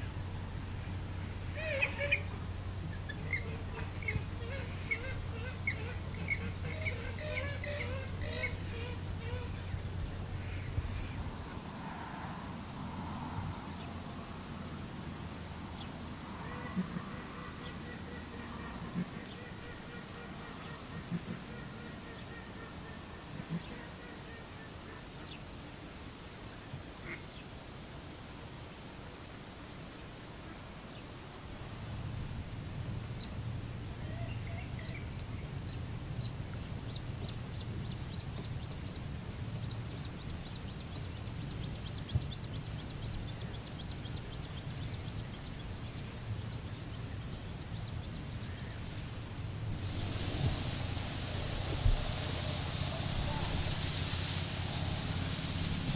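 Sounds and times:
high-pitched insect trill: 0:00.0 - 0:55.9
low wind rumble: 0:49.5 - 0:55.9.

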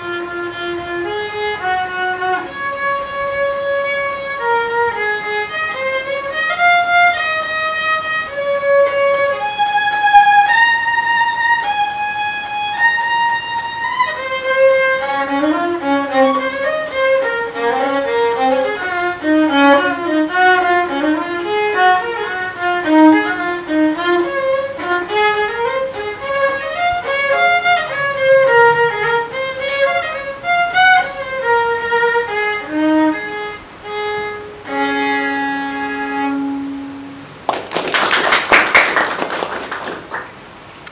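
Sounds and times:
solo violin: 0:00.0 - 0:37.5.

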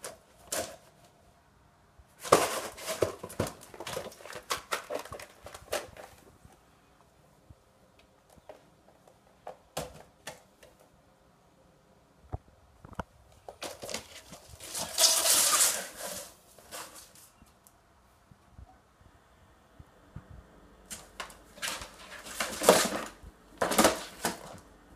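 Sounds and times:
kitten scrambling and scratching: 0:02.2 - 0:06.4, 0:12.9 - 0:17.5, 0:20.9 - 0:24.7.

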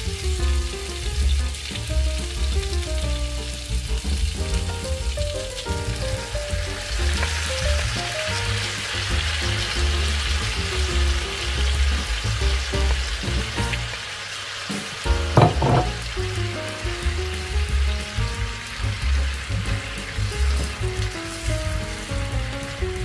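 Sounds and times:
meat sizzling in a frying pan: 0:00.0 - 0:23.0
short knocks: 0:15.1 - 0:16.1.

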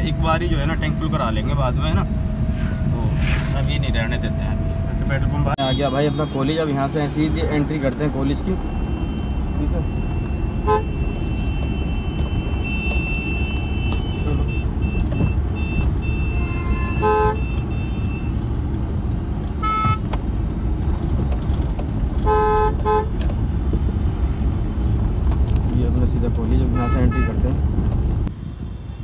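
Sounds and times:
car road and engine noise: 0:00.0 - 0:29.0
vehicle horns honking: 0:05.6 - 0:06.8, 0:08.6 - 0:18.3, 0:19.6 - 0:20.1, 0:22.2 - 0:23.2, 0:26.6 - 0:27.5.

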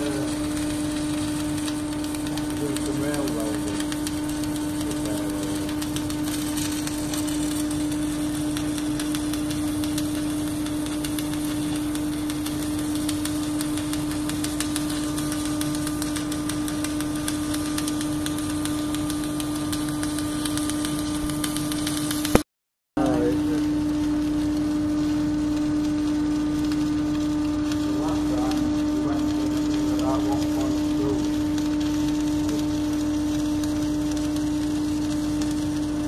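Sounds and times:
fine welding crackle: 0:00.0 - 0:22.4, 0:23.0 - 0:36.0
welding rig electrical hum: 0:00.0 - 0:22.4, 0:23.0 - 0:36.0.

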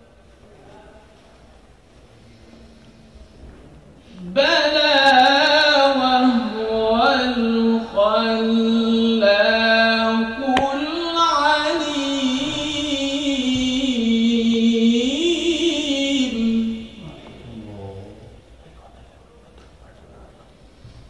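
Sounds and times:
man reciting melodically: 0:04.2 - 0:18.5.

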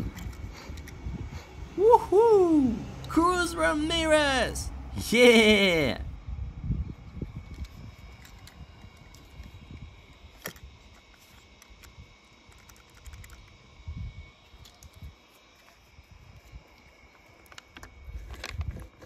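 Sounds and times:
toy car handling clicks: 0:10.4 - 0:13.6.

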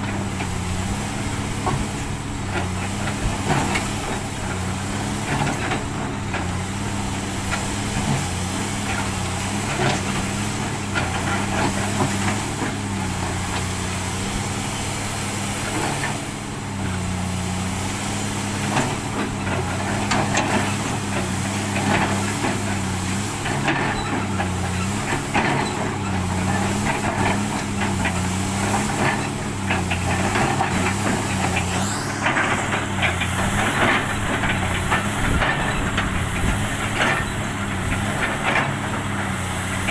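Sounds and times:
excavator diesel engine running: 0:00.0 - 0:39.9
rising whine: 0:31.0 - 0:35.0.

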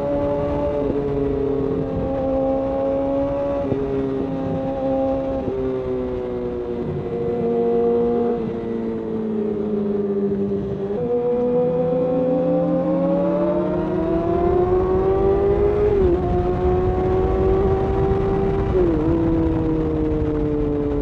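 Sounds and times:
motorcycle engine accelerating: 0:00.0 - 0:21.0
wind rush: 0:13.8 - 0:21.0.

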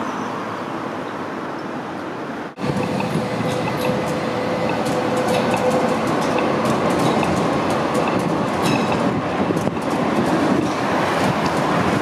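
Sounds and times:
tram wheels rumbling on rails: 0:02.5 - 0:12.0
wheels clicking over track: 0:02.6 - 0:12.0.

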